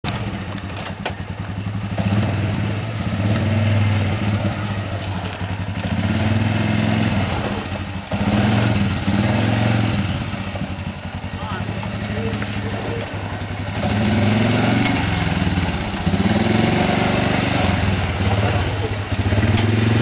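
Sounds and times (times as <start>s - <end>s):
quad engine at low speed: 0.0s - 20.0s
sharp clicks: 19.4s - 19.8s.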